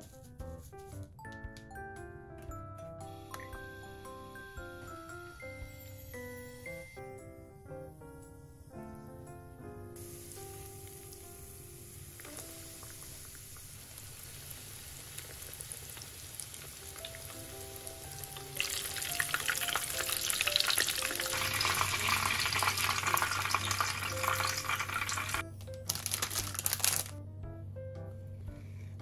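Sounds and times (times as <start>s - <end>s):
background music: 0.0s - 13.0s, 16.8s - 29.0s
food sizzling in hot oil: 3.2s - 7.1s, 10.0s - 25.4s.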